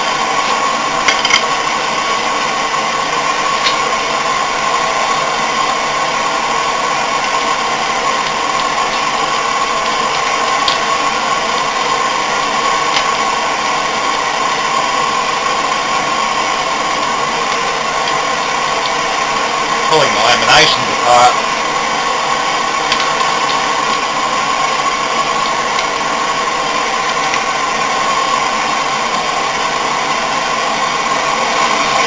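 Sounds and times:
gas torch hissing: 0.0s - 32.0s
spanner clicks: 9.8s - 11.9s, 22.9s - 24.0s.

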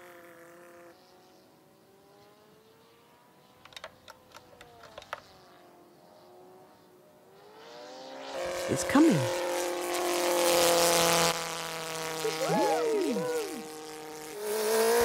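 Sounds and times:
model plane motor droning: 0.0s - 15.0s
radio transmitter control clicks: 3.6s - 5.3s.

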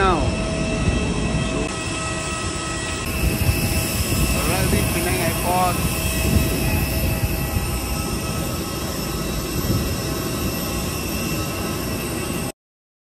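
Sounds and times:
jet aircraft whine: 0.0s - 12.6s
low rumble: 3.0s - 10.4s.

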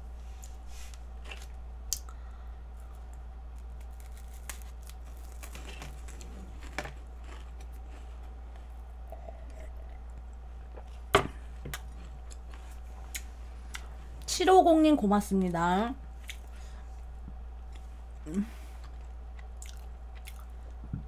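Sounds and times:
low electrical hum: 0.0s - 21.0s
crunching and chewing pastry: 0.9s - 14.0s, 17.6s - 20.8s.

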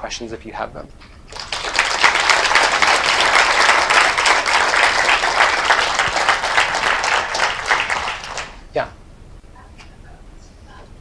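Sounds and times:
audience applauding: 1.3s - 8.7s.

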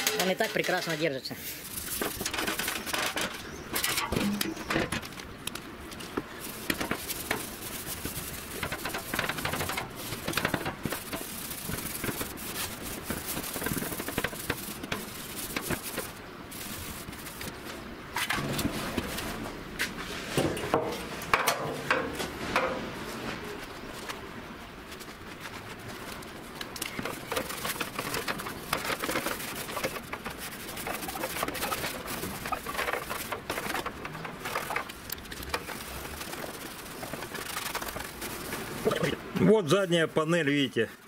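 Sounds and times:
rag scrubbing metal panel: 6.4s - 17.4s, 25.6s - 39.1s
clicks and knocks on metal: 20.4s - 22.8s.

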